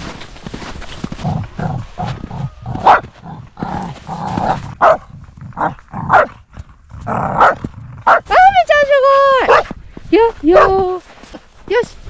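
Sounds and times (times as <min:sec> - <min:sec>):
dog barking: 0:02.8 - 0:03.1, 0:04.8 - 0:06.4, 0:07.3 - 0:08.3, 0:09.5 - 0:09.7, 0:10.5 - 0:10.8.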